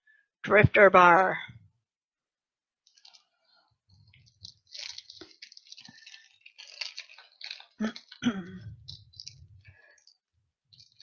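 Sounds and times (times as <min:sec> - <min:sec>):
candy wrapper crinkling: 0:02.8 - 0:11.0.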